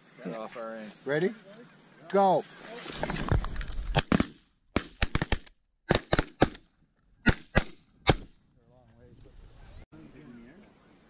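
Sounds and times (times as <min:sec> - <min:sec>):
shotgun blasts: 0:03.9 - 0:06.6, 0:07.2 - 0:08.4.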